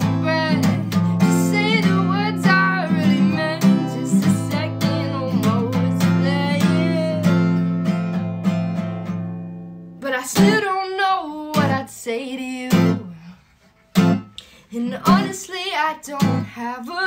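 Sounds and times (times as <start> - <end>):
person singing: 0.0 - 7.6, 14.7 - 17.0
acoustic guitar strumming: 0.0 - 10.7, 13.8 - 15.5.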